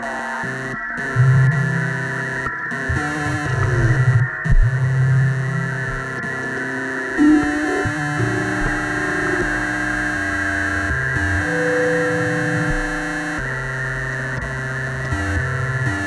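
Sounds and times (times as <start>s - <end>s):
low stepping synthesizer notes: 2.8s - 16.0s
harsh noisy synthesizer texture: 5.7s - 15.0s
higher held synth tone: 6.5s - 14.4s.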